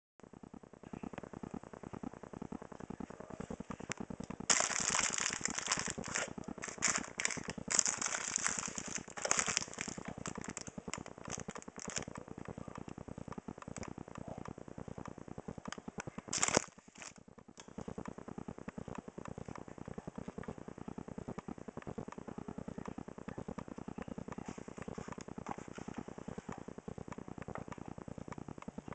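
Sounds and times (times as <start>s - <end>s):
fast patter of small clicks: 0.2s - 28.9s
plastic packaging crinkling: 4.5s - 12.2s, 16.2s - 17.2s.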